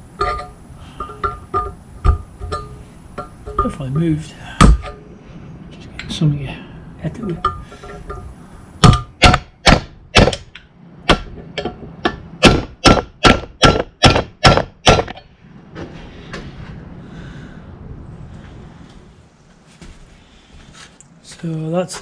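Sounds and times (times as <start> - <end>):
hammer striking metal: 7.4 - 15.3.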